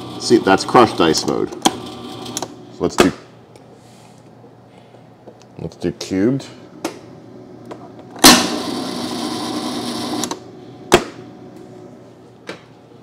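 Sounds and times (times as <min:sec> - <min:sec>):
ice dispenser mechanism running: 0:00.0 - 0:02.5, 0:08.2 - 0:10.4.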